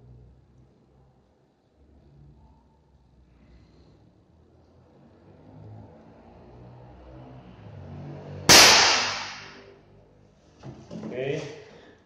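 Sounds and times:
air rifle shot crack: 0:08.5 - 0:09.6.

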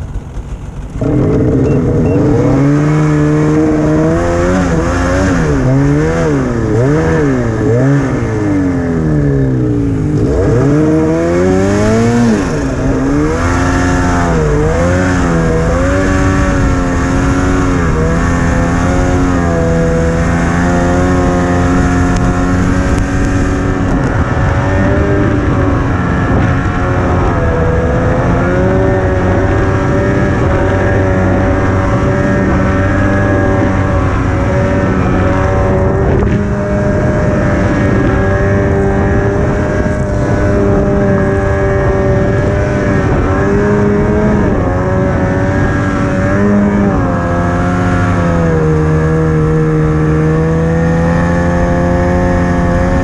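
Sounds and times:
snowmobile engine revving: 0:00.0 - 0:53.0.

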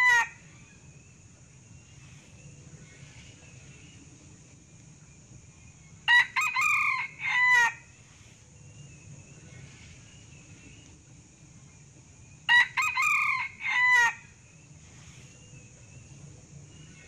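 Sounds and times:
rooster crowing: 0:00.0 - 0:00.4, 0:06.1 - 0:07.9, 0:12.5 - 0:14.3.

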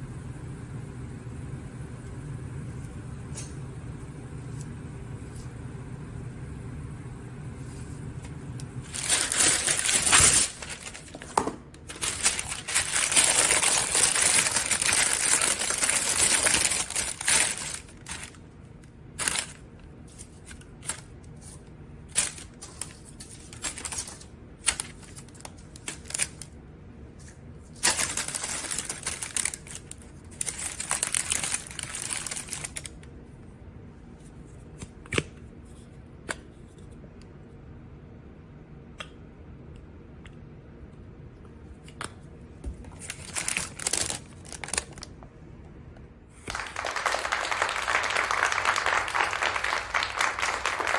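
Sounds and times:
paper crinkling: 0:08.8 - 0:18.4, 0:19.2 - 0:26.5, 0:27.2 - 0:33.0, 0:42.9 - 0:45.2.

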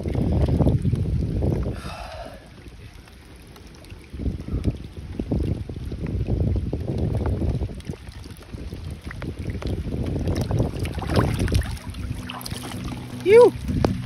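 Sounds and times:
water splashing alongside boat: 0:00.0 - 0:14.0
wind on microphone: 0:00.0 - 0:14.0
fish splashing: 0:07.8 - 0:14.0.

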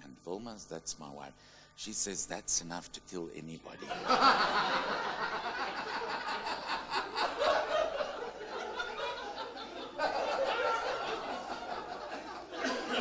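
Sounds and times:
audience laughing: 0:03.9 - 0:13.0.

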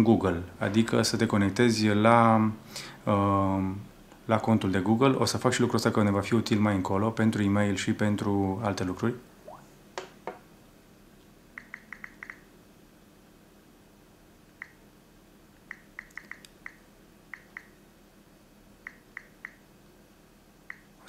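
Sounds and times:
phone keyboard clicks: 0:11.6 - 0:12.4, 0:15.7 - 0:16.8.

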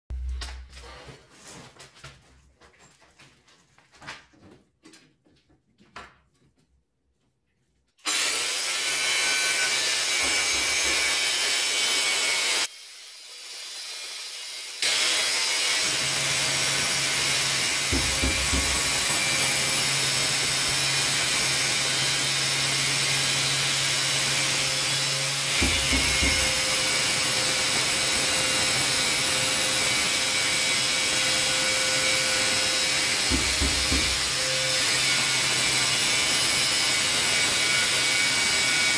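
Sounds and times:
angle grinder grinding tile: 0:08.1 - 0:38.9.

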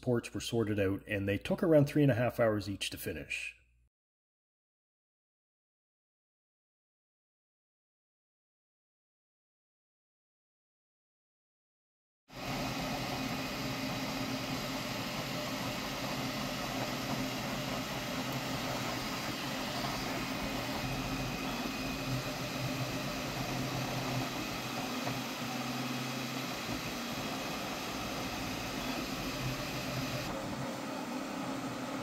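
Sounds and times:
stepper motor tones: 0:12.4 - 0:32.0
fan whirring: 0:12.5 - 0:32.0.

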